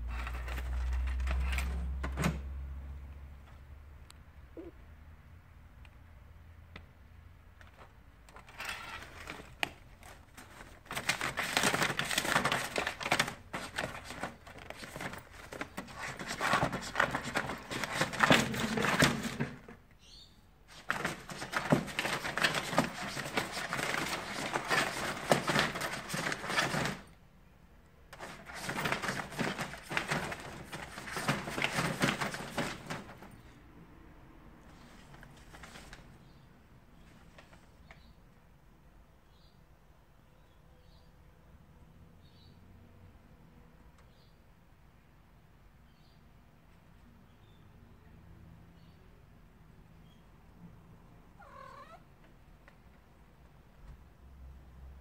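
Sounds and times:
paper rustling and crinkling: 0:00.0 - 0:02.3, 0:07.6 - 0:19.8, 0:20.7 - 0:27.1, 0:28.1 - 0:33.5, 0:34.7 - 0:36.2.

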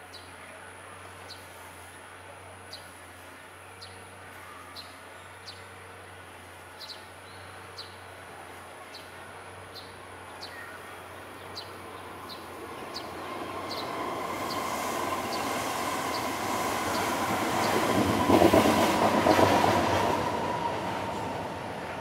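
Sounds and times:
sparrow chirps: 0:11.5 - 0:17.8.

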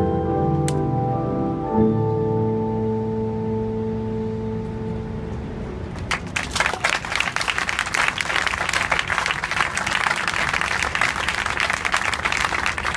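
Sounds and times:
audience applauding: 0:06.0 - 0:12.9.

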